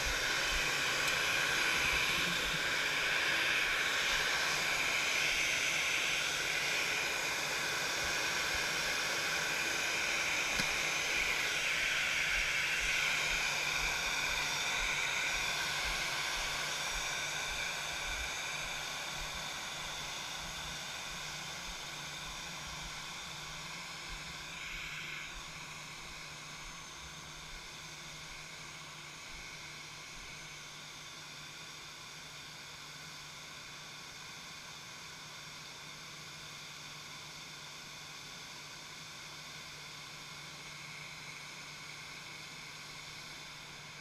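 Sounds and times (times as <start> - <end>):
jet engines idling: 0.0 - 28.5.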